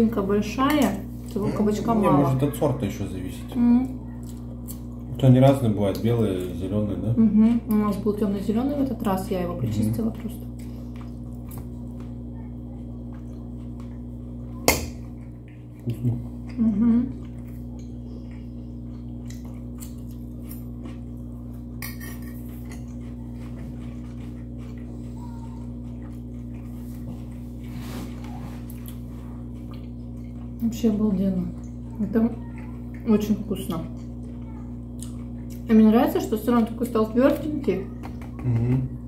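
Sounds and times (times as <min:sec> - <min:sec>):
steady low hum: 0:00.0 - 0:39.0
cutlery clinking on plates: 0:21.8 - 0:22.9.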